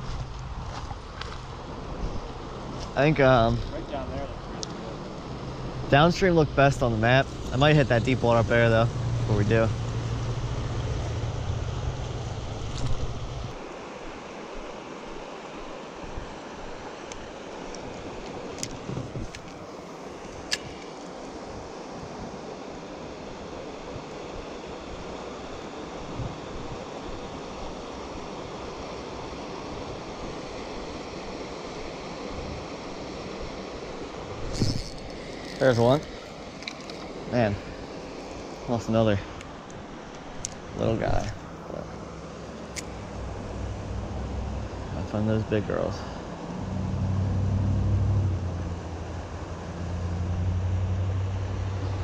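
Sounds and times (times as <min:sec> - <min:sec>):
low engine hum: 0:00.0 - 0:13.6, 0:40.7 - 0:52.0
river current rushing: 0:00.0 - 0:52.0.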